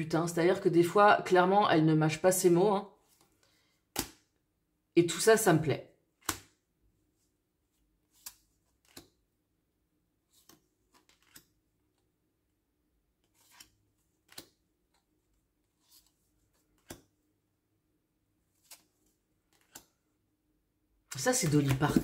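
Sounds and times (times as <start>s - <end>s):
cards flipped by hand: 3.1s - 4.3s, 6.2s - 6.6s, 8.0s - 9.3s, 10.2s - 12.1s, 13.2s - 17.2s, 18.5s - 20.0s, 21.1s - 22.0s.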